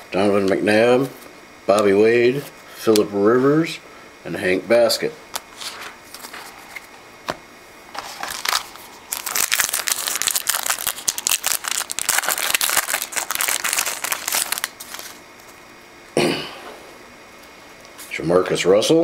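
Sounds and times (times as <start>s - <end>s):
card pack wrapper crinkling: 8.0s - 15.6s.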